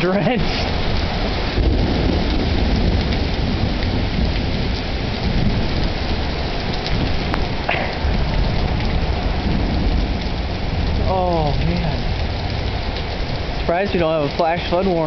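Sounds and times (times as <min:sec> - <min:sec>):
continuous low rumble: 0:00.0 - 0:15.0
heavy rain pouring: 0:00.0 - 0:15.0.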